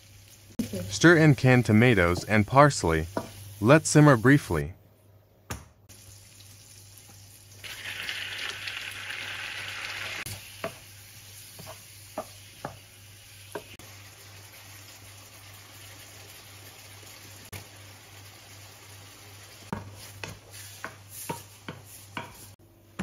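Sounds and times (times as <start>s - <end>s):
tomatoes sizzling in frying pan: 0.0s - 4.4s, 5.9s - 22.6s
wooden spatula knocking pan: 19.7s - 23.0s.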